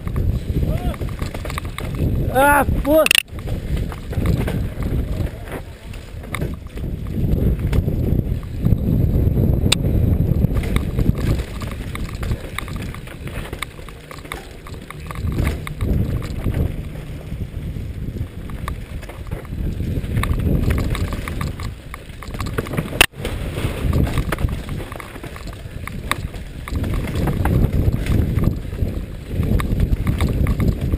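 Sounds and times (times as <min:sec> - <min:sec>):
bike rattling and knocking: 0:00.0 - 0:30.9
wind buffeting microphone: 0:00.0 - 0:30.9
tyres crunching over stones: 0:10.4 - 0:30.9.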